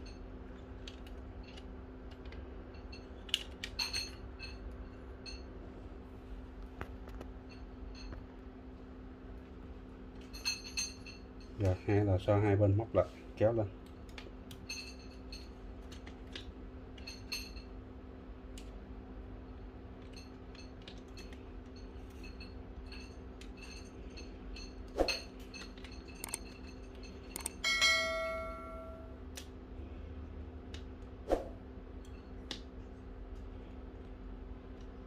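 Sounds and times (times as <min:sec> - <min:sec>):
bell-like ding: 0:27.6 - 0:29.1.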